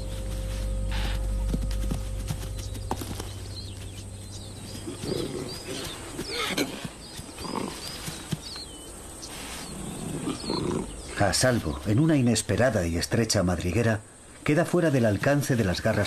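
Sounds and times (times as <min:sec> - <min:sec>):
high chirps: 0:00.0 - 0:08.0
rustling in grass: 0:00.0 - 0:10.7
low animal calls: 0:02.5 - 0:08.3.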